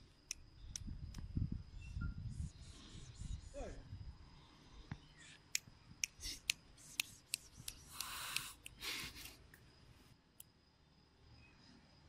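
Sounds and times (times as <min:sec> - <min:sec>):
mouth clicks: 0:05.5 - 0:09.4
person hissing psst: 0:06.1 - 0:09.4.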